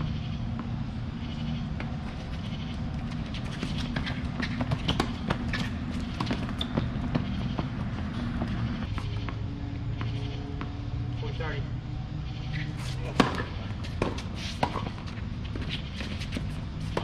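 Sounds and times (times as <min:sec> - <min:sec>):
steady low hum: 0:00.0 - 0:17.0
racket hitting tennis ball: 0:03.4 - 0:07.7, 0:12.8 - 0:15.2
shoe scuffs on hard court: 0:12.6 - 0:17.0.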